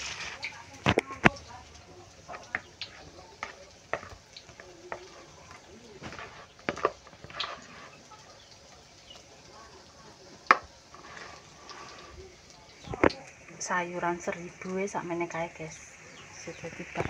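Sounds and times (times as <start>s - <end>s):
plastic spoon stirring thick batter: 0.0s - 13.3s
spoon tapping and scraping bowl: 2.3s - 8.0s.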